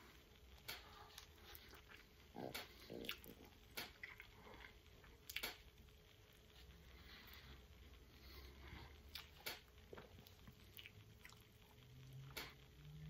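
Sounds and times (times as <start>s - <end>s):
person slurping and chewing noodles: 0.8s - 5.5s.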